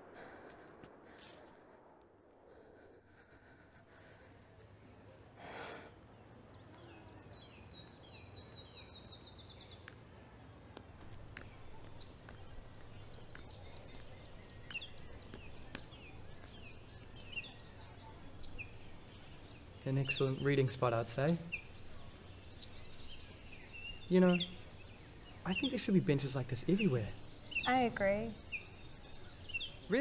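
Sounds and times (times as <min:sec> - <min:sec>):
bird chirps: 0:05.8 - 0:09.9, 0:11.0 - 0:30.0.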